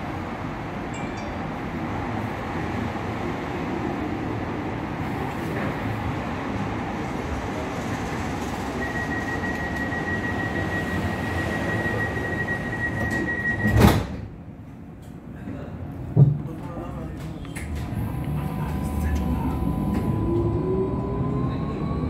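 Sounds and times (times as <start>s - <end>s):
tram equipment low rumble: 0.0s - 22.0s
steady high-pitched tone: 17.9s - 22.0s.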